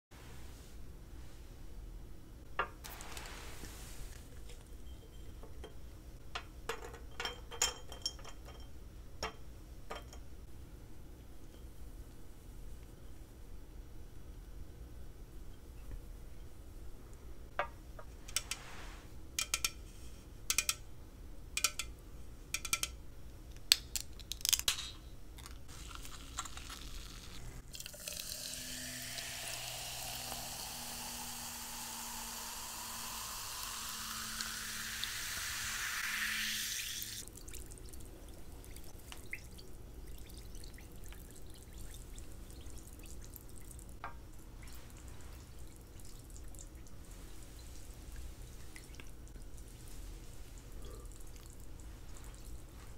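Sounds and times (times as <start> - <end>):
faint fizzing crackle: 25.4 - 36.3, 37.0 - 52.9
drink pouring into glass jar: 27.6 - 38.0.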